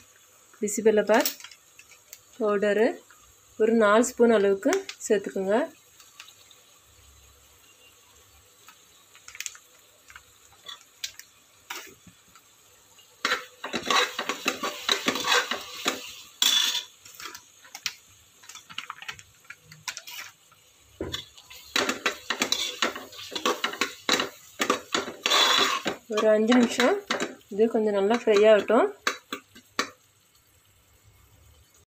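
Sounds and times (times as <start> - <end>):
spoon scraping inside pot: 13.2 - 17.4, 21.1 - 27.3.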